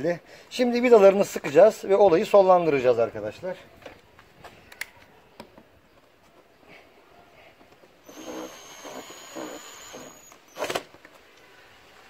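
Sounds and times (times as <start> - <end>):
cordless drill running: 8.0 - 10.8.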